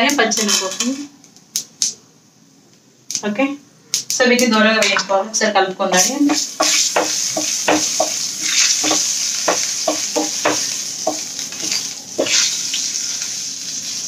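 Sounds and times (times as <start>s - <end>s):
hot oil sizzling: 6.0s - 14.0s.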